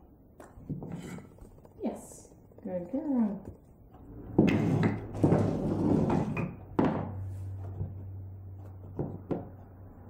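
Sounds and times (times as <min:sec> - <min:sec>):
wooden dumbbells knocking on floor: 0:06.7 - 0:07.2.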